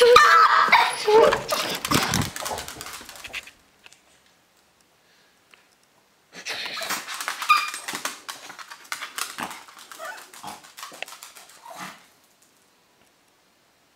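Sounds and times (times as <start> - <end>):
dog whining: 0.0 - 2.7, 6.6 - 8.1, 9.9 - 10.6
small dog yapping: 0.0 - 2.7, 6.8 - 8.1, 9.0 - 10.7.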